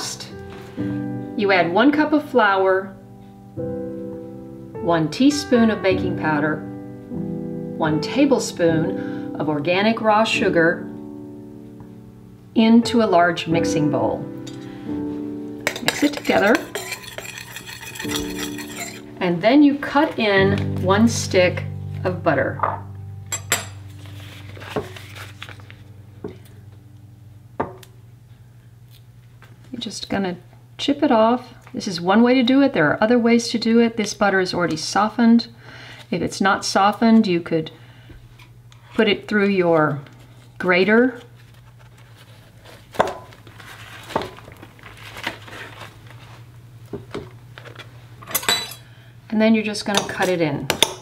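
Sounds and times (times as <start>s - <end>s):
knife scraping and tapping: 15.7s - 19.1s
paper wrapper crinkling: 23.9s - 25.9s, 41.2s - 46.5s.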